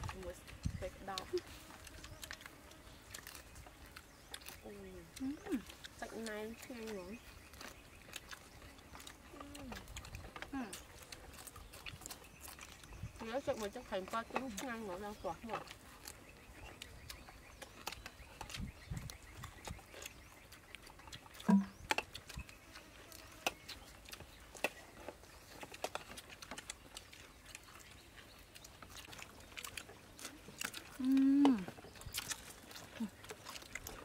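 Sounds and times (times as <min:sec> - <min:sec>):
chewing and lip-smacking: 0:00.0 - 0:34.0
person humming mm: 0:21.4 - 0:21.7, 0:31.0 - 0:31.7.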